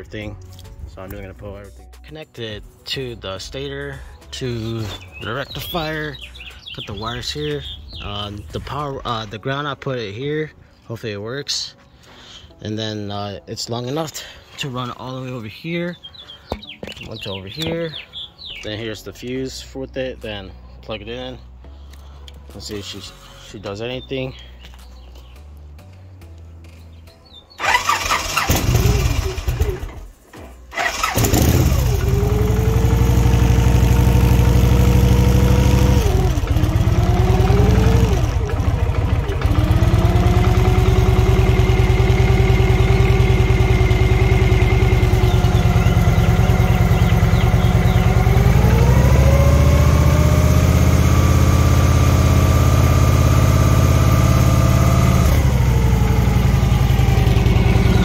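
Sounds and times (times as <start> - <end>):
motorcycle engine revving and idling: 4.6 - 9.1, 27.6 - 30.1, 30.7 - 58.0.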